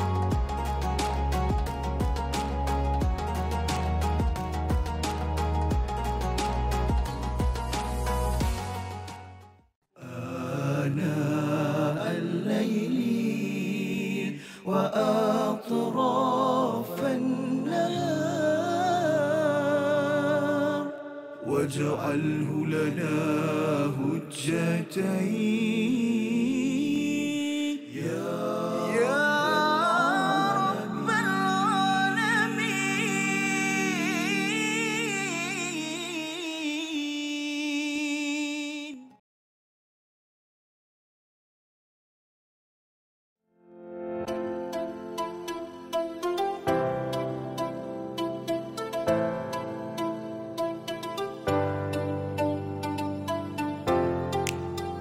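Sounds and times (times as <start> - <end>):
person chanting melodically: 10.0 - 39.2
person singing with ornamented pitch: 10.0 - 39.2.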